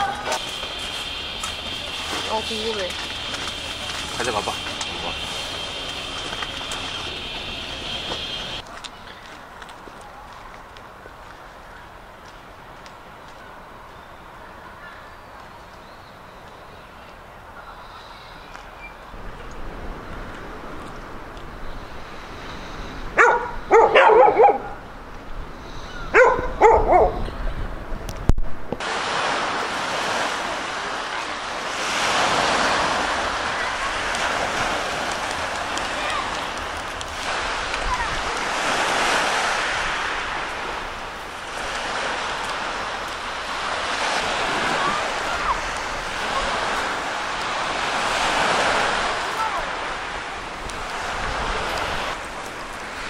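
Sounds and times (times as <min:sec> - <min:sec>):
dog barking: 0:00.0 - 0:00.4, 0:23.2 - 0:24.8, 0:26.0 - 0:27.2
waves washing on pebble beach: 0:00.0 - 0:09.8, 0:28.8 - 0:53.0.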